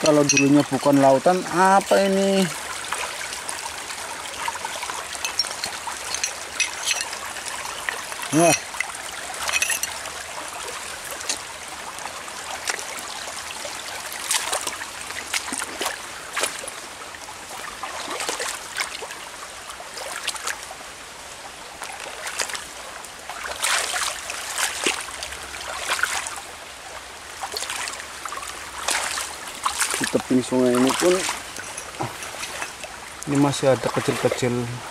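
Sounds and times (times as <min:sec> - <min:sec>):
stream trickling: 0:00.0 - 0:34.9
short clicks and splashes: 0:05.2 - 0:07.3.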